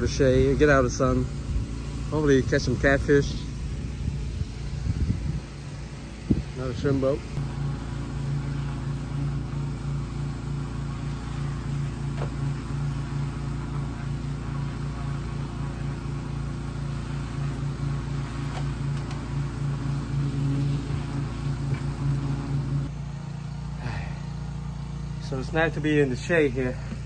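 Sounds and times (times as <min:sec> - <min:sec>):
engine running with pulsing hum: 0:00.0 - 0:27.0.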